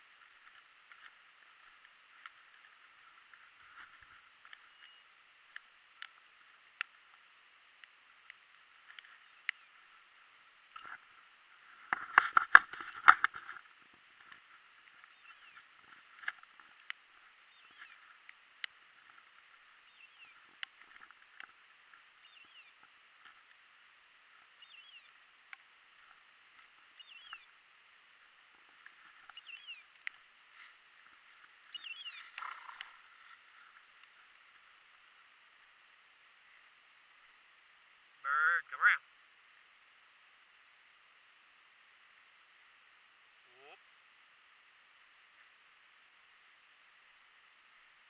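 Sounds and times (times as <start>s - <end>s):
rustling through dry grass: 0.0s - 38.2s
steady hiss: 0.0s - 48.0s.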